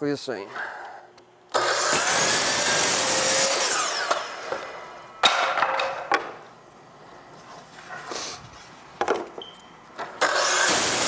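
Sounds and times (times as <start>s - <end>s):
saw blade winding down whine: 1.5s - 4.4s, 10.2s - 11.0s
miter saw cutting wood: 1.5s - 4.7s, 10.2s - 11.0s.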